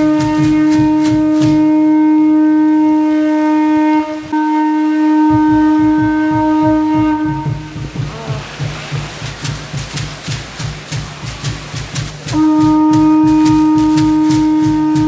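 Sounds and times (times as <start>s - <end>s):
conch shell trumpet blasts: 0.0s - 8.7s, 12.2s - 15.0s
low drum beating: 0.0s - 15.0s.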